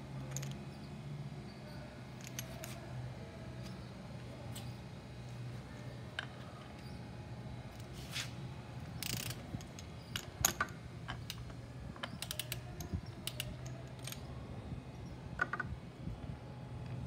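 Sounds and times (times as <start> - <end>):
torque wrench ratchet clicking: 9.0 - 14.3.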